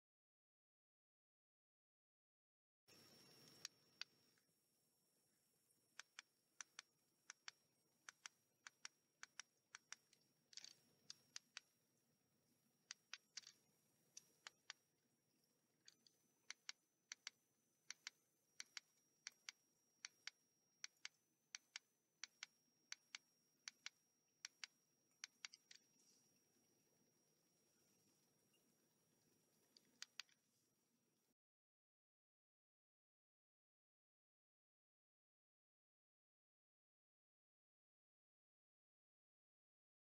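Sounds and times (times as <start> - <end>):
faint high whine: 2.9 - 31.3.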